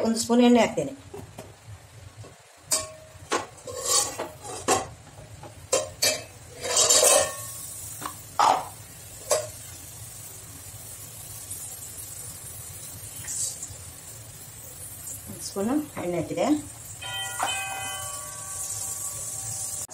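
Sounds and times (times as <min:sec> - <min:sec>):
faint steady hiss: 0:00.0 - 0:19.9
spoon scraping a metal pot: 0:03.6 - 0:04.7, 0:05.8 - 0:07.6.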